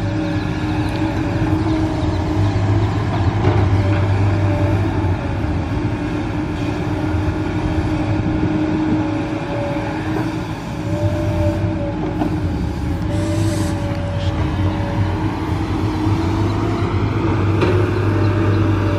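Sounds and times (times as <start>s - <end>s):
excavator diesel engine under load: 0.0s - 18.9s
hydraulic whine: 9.4s - 18.9s.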